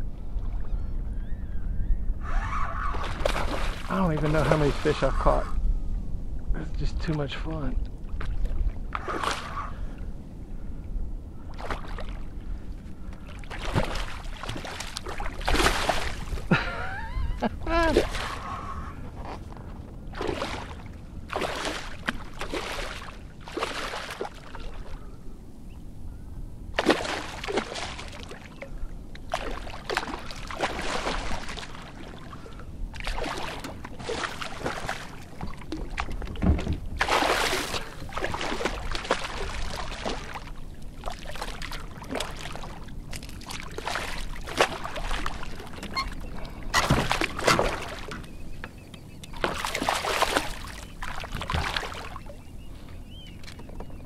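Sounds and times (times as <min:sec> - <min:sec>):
paddle splashing into water: 0:02.9 - 0:05.0, 0:13.5 - 0:16.5, 0:17.8 - 0:18.4, 0:20.1 - 0:24.4, 0:26.8 - 0:28.5, 0:29.3 - 0:32.2, 0:33.0 - 0:48.2, 0:49.3 - 0:52.3.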